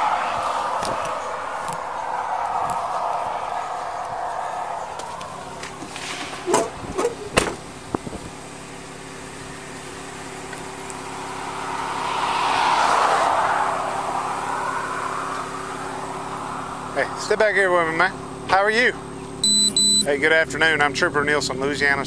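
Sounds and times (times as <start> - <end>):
vehicle passing on road: 0.0 - 19.4
car door shutting: 5.8 - 8.2.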